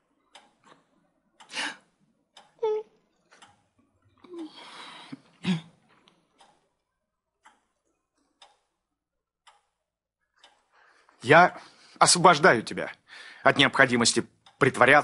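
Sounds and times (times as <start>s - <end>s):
wall clock ticking: 0.0s - 15.0s
breathy sigh: 4.2s - 5.7s.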